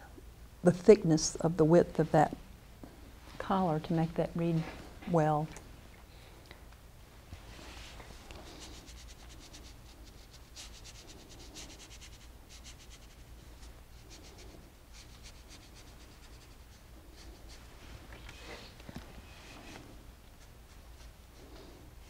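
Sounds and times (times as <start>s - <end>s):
low steady hum: 0.0s - 22.0s
paintbrush scratching on paper: 7.6s - 17.8s, 19.3s - 21.7s.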